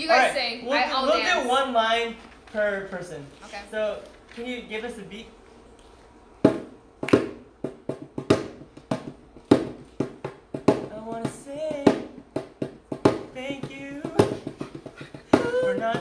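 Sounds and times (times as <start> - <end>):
percussive beat: 6.4 - 16.0
person singing: 15.2 - 16.0.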